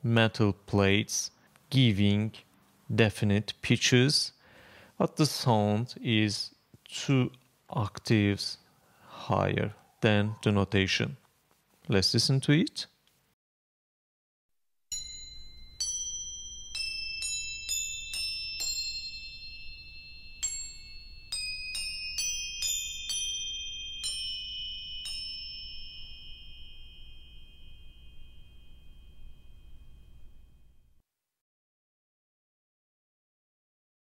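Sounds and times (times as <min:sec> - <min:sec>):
crotales playing slow melody: 0:14.9 - 0:30.9.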